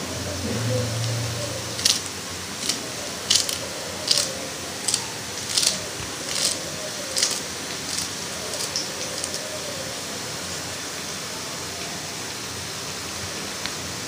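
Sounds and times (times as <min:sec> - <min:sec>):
faint steady hiss: 0:00.0 - 0:14.0
scissors snipping herbs: 0:01.0 - 0:09.5.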